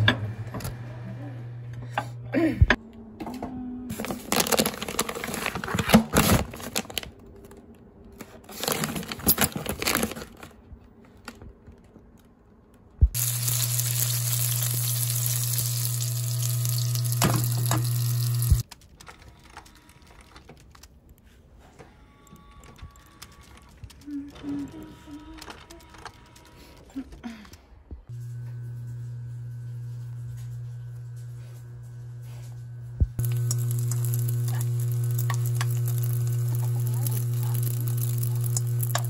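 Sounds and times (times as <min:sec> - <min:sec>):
plastic packaging crinkling: 0:03.9 - 0:07.6, 0:08.5 - 0:10.6, 0:13.2 - 0:18.6, 0:33.2 - 0:39.0
low hum: 0:13.0 - 0:18.6, 0:28.1 - 0:39.0
dumplings sizzling in oil: 0:13.2 - 0:18.6, 0:33.2 - 0:39.0.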